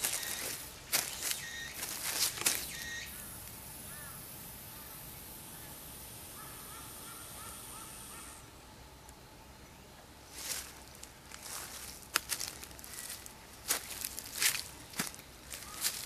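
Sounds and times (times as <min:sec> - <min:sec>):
footsteps on dry leaves: 0:00.0 - 0:04.0, 0:10.3 - 0:16.0
faint bird calls: 0:00.0 - 0:08.7, 0:14.9 - 0:16.0
steady high-pitched hiss: 0:00.0 - 0:16.0.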